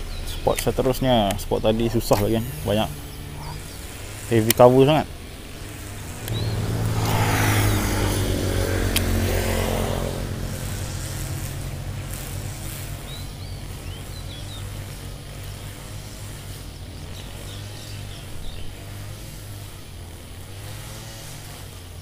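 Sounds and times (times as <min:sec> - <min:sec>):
steady low hum: 0:00.0 - 0:22.0
vehicle engine passing: 0:00.0 - 0:22.0
sharp click: 0:06.2 - 0:06.4.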